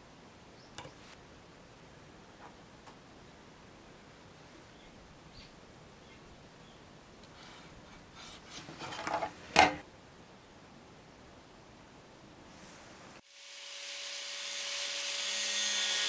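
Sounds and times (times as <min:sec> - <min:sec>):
thin metal scraping on wood: 0:07.3 - 0:09.8.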